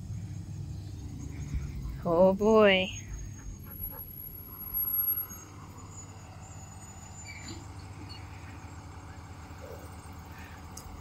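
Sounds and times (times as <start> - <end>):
bus engine running: 0.0 - 11.0.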